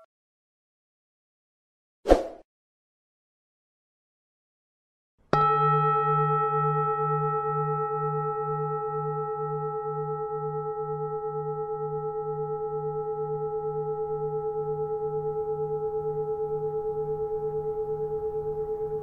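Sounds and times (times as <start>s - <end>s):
bowl bell ringing: 5.4s - 19.0s.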